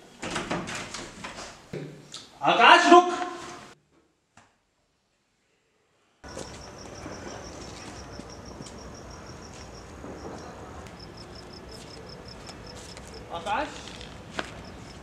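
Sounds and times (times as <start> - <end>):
cricket chirping: 6.2 - 13.4, 14.5 - 15.0.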